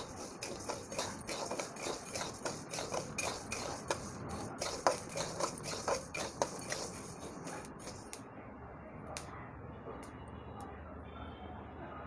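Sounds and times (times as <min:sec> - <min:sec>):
grains rustling: 0:00.0 - 0:08.1
metal spatula scraping iron pan: 0:00.0 - 0:08.2.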